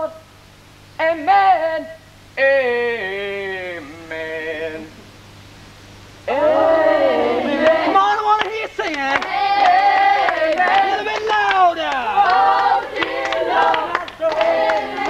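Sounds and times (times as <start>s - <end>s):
person singing long notes: 1.0s - 5.0s, 6.2s - 8.0s
group of voices singing: 6.3s - 15.0s.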